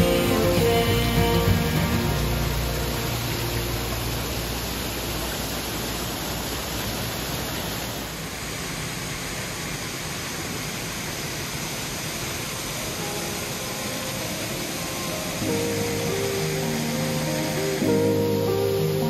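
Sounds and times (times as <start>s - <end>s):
small waterfall splashing into pool: 0.0s - 19.0s.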